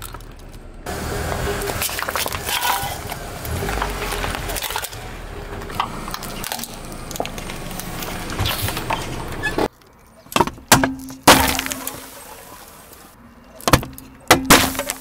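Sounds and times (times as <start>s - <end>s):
tyre crushing objects: 0.0s - 12.2s, 13.5s - 15.0s
soda cans bursting: 10.6s - 13.1s, 13.7s - 15.0s.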